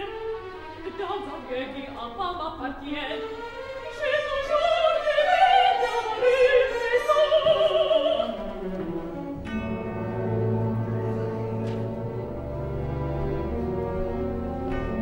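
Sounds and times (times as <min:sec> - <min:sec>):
orchestra playing: 0:00.0 - 0:15.0
woman singing operatically: 0:00.8 - 0:08.9.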